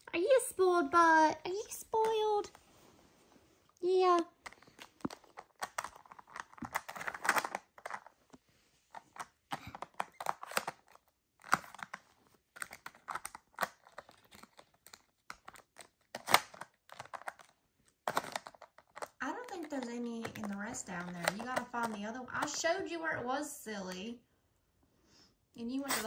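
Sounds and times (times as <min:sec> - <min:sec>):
plastic tiles clicking and clattering: 0:04.2 - 0:08.1, 0:08.9 - 0:22.6.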